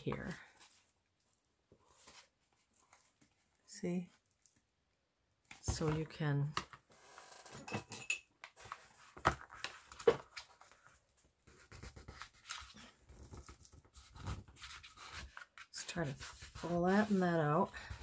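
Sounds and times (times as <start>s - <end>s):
paper pages rubbing and rustling: 8.6s - 18.0s.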